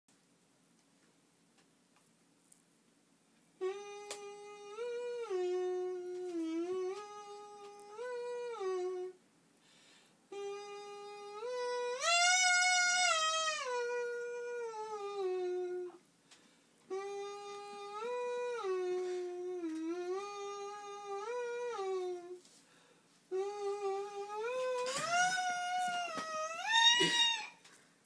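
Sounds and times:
man humming a tune: 3.6s - 9.2s, 10.3s - 16.0s, 16.9s - 22.5s, 23.3s - 27.6s.

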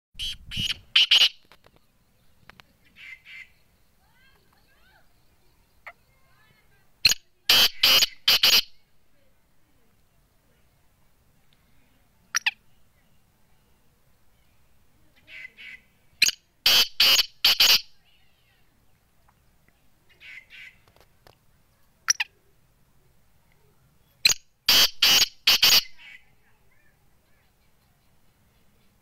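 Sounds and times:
francolin calling: 0.2s - 8.8s, 15.2s - 18.0s, 24.2s - 29.0s.

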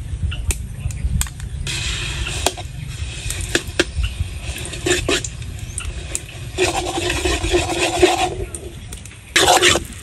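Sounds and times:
light hiss: 1.6s - 10.0s
metal ladle scraping a wok: 2.2s - 8.8s, 9.4s - 10.0s.

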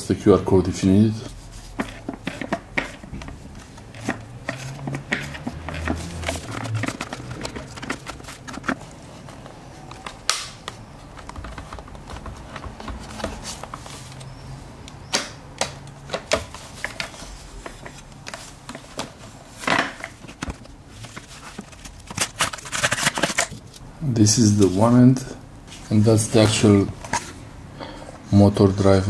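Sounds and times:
plastic parts clicking and knocking: 1.8s - 13.9s, 15.1s - 23.6s.

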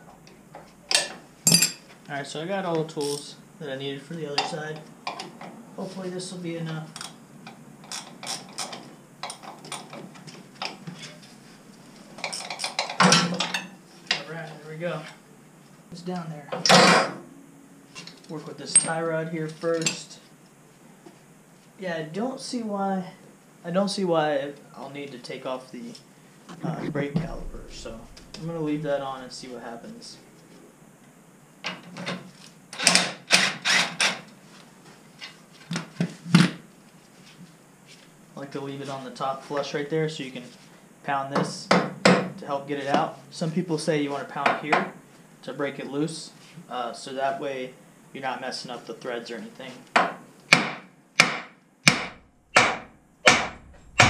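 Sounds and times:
metal hand tools clinking: 0.9s - 1.8s.

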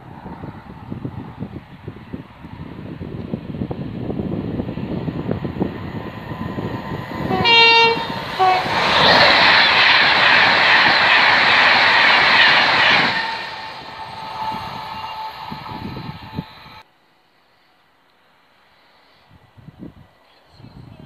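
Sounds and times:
train passing at speed: 0.0s - 16.9s
train horn: 7.2s - 8.9s, 12.8s - 16.8s.

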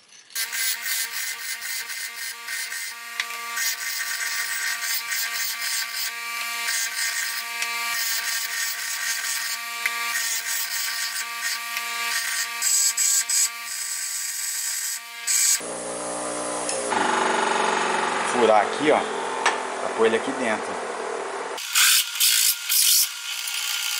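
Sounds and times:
metal grinding scrape: 0.4s - 13.4s
bench grinder motor hum: 0.4s - 18.4s.

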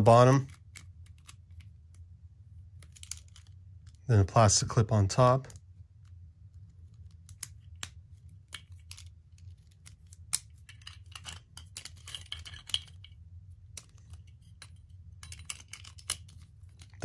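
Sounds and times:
plastic parts clicking and rattling: 0.1s - 2.0s, 2.8s - 4.0s, 5.5s - 17.0s.

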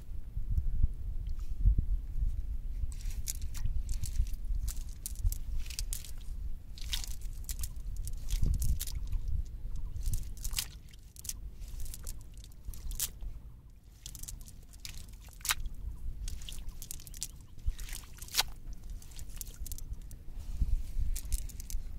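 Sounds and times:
wet net crackling and squishing: 2.9s - 21.9s.

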